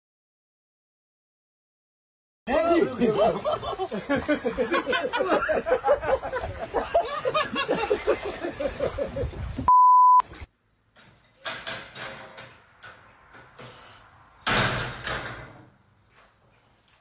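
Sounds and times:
person laughing: 2.6 - 9.4
high beep: 9.7 - 10.2.

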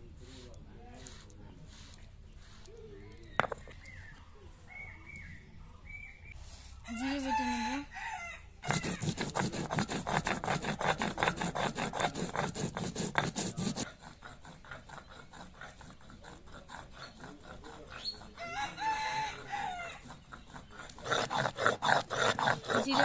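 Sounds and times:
stone grinding seeds: 0.2 - 4.1, 8.6 - 14.0, 20.1 - 23.0
rooster crowing: 6.9 - 9.0, 18.4 - 20.0.

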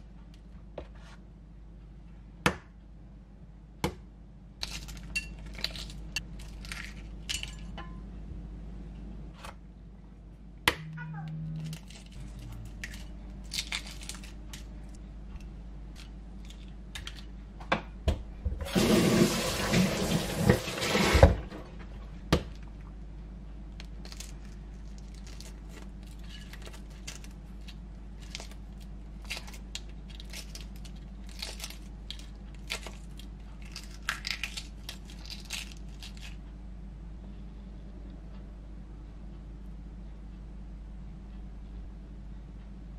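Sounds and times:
eggshells cracking: 11.6 - 15.0, 23.8 - 36.4.

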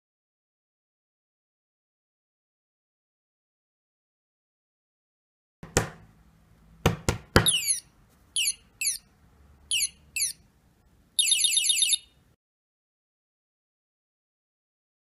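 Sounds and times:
electronic bird chirps: 7.4 - 9.1, 9.7 - 10.4, 11.2 - 12.2.

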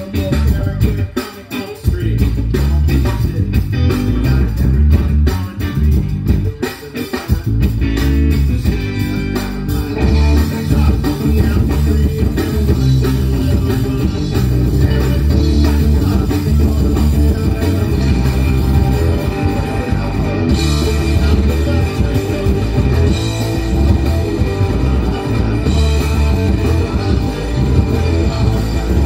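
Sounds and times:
electric guitar: 0.0 - 29.0
live rock band playing: 0.0 - 29.0.

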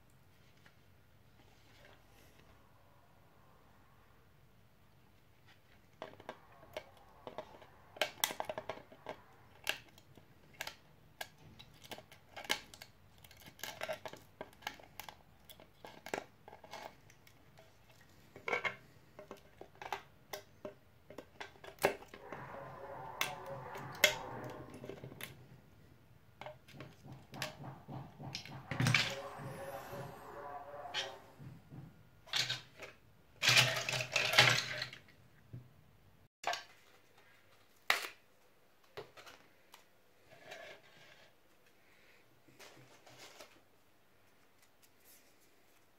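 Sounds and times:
crackling and scraping: 5.2 - 35.0.

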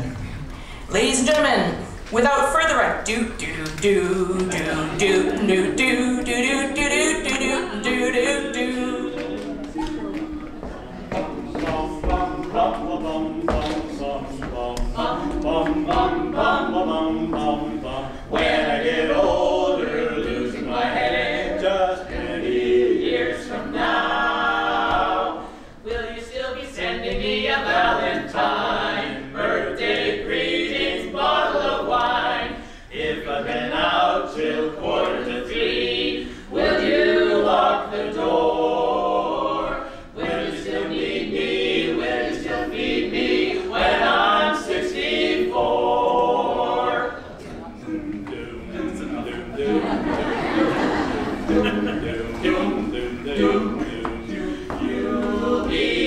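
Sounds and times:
men singing in harmony: 4.2 - 47.2, 47.8 - 56.0.

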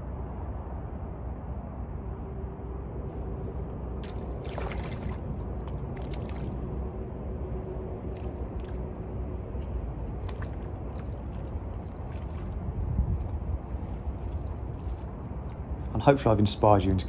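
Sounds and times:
fish splashing at water surface: 4.0 - 6.8, 8.1 - 9.3, 10.2 - 15.6.

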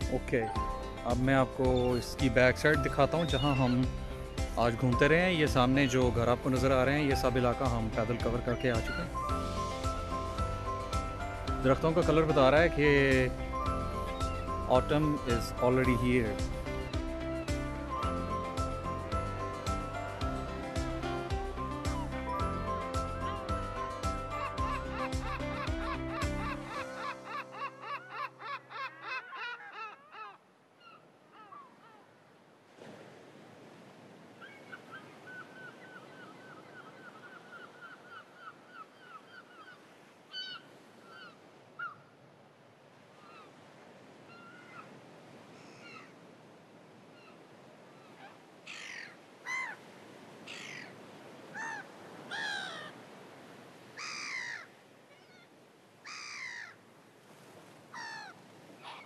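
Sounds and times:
harsh bird calls: 2.9 - 4.6, 50.5 - 50.9.

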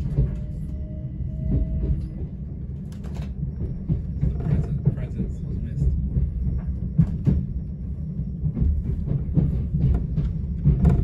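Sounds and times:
train low rumble: 0.0 - 11.0
wheels knocking and clattering: 3.0 - 11.0.

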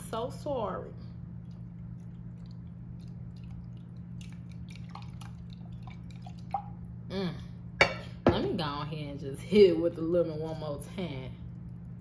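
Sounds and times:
steady low hum: 0.0 - 12.0
sauce dripping: 1.2 - 7.1, 11.4 - 12.0.

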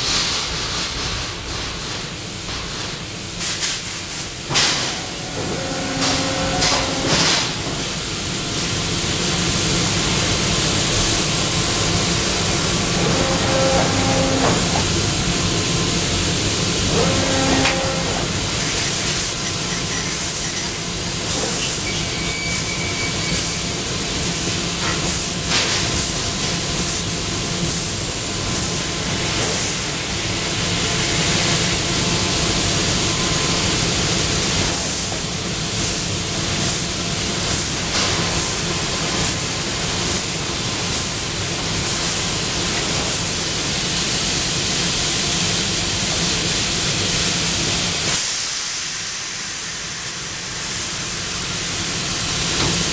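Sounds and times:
air hiss: 41.8 - 52.9.

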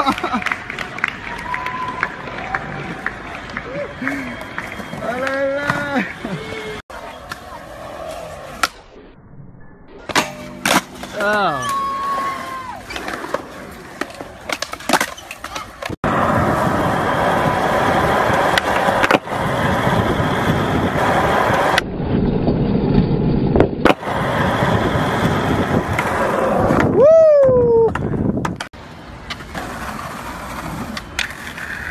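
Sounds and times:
skateboard clicks and knocks: 0.0 - 8.8, 10.1 - 21.8, 27.8 - 31.9
skateboard wheels rolling on concrete: 0.0 - 9.0, 10.1 - 31.9.

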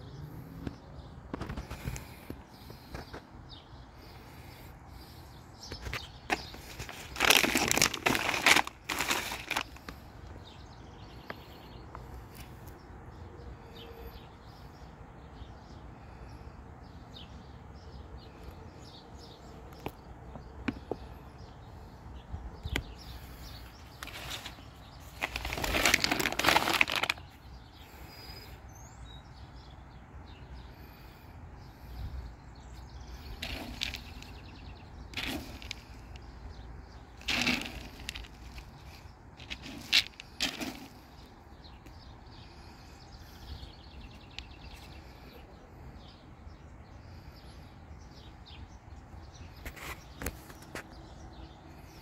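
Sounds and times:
plastic bag crinkling: 6.3 - 9.9, 24.0 - 27.2, 33.4 - 34.4, 35.1 - 36.1, 37.2 - 40.9.

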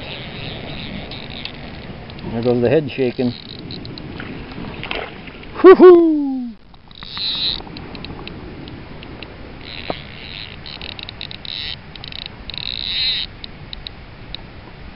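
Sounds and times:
fly reel drag ratcheting: 0.0 - 4.1, 6.8 - 8.4, 9.0 - 14.0.

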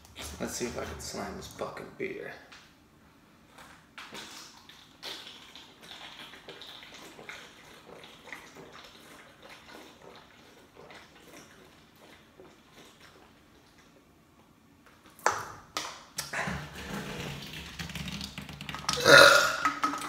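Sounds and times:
person gulping drink: 3.6 - 14.0, 16.2 - 20.0
liquid glugging from a can: 3.9 - 14.1, 15.0 - 20.0.

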